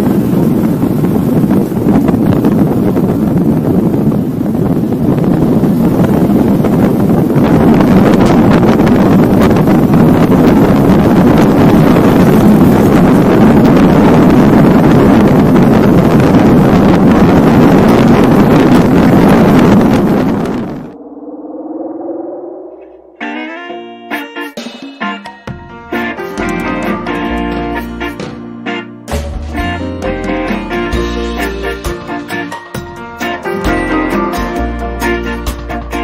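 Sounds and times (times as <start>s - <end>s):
wind rushing over microphone: 0.0s - 23.5s.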